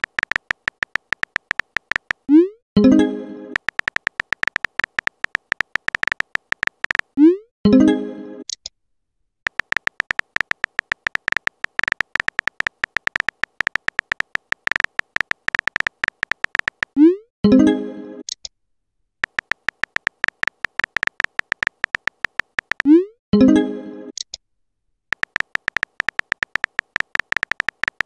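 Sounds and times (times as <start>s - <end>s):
keyboard key clicks: 0.0s - 2.2s, 3.6s - 7.1s, 9.5s - 17.0s, 19.2s - 22.9s, 25.1s - 28.0s.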